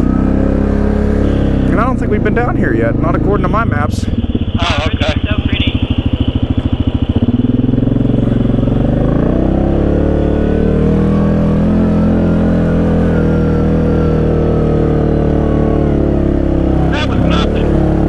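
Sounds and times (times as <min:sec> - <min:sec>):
atv engine revving: 0:00.0 - 0:18.0.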